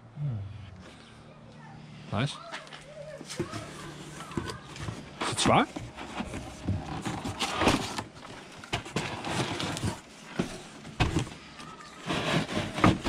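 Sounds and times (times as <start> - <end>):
cardboard box rustling and scraping: 3.2 - 13.0.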